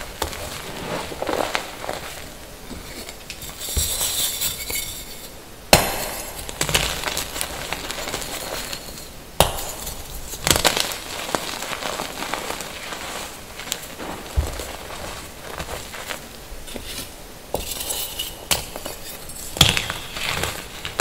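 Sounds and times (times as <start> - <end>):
chalk crumbling in hand: 6.0 - 21.0.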